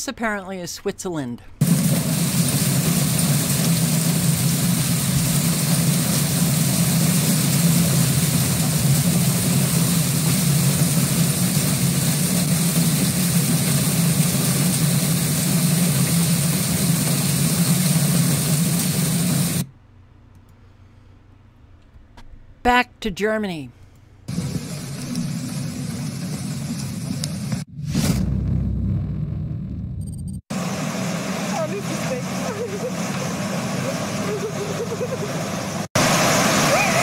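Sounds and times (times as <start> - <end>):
hailstones striking ground and roofs: 1.6 - 19.2.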